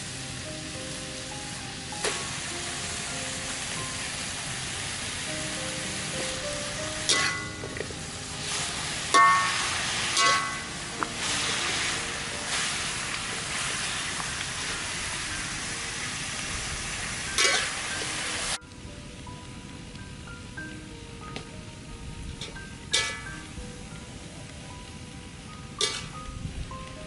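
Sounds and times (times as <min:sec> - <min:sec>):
light background music: 0:00.0 - 0:27.0
vegetables sizzling in a wok: 0:00.0 - 0:27.0
metal spatula scraping a wok: 0:07.0 - 0:07.6, 0:08.6 - 0:12.8, 0:17.3 - 0:17.9, 0:22.4 - 0:23.3, 0:25.8 - 0:26.2.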